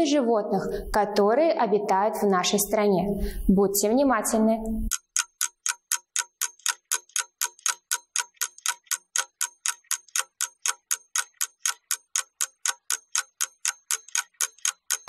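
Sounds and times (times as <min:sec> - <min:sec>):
clock ticking: 0:04.6 - 0:15.0.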